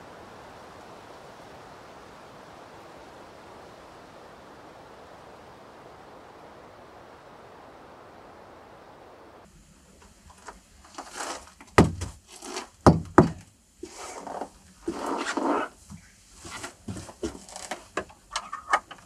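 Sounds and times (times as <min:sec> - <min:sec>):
scraping rustle: 0:10.0 - 0:12.9, 0:13.8 - 0:19.0
rustling and clatter: 0:10.0 - 0:19.0
heavy knocks on wood: 0:11.8 - 0:12.2, 0:12.8 - 0:13.4.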